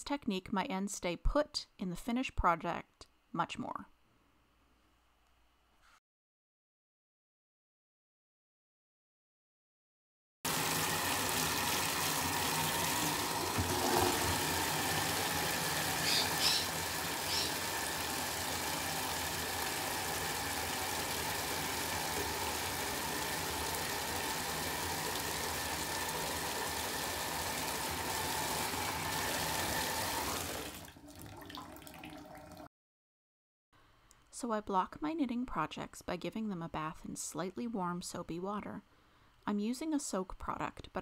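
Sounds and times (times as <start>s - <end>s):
tap running into a bucket: 10.5s - 32.7s.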